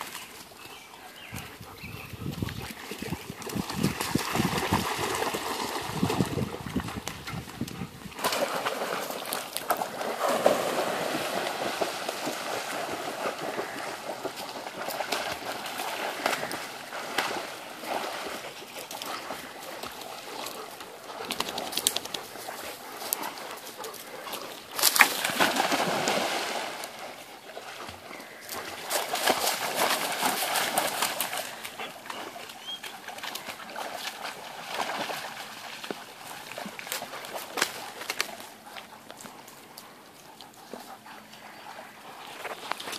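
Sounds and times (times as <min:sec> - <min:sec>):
dogs splashing in water: 0:00.0 - 0:42.9.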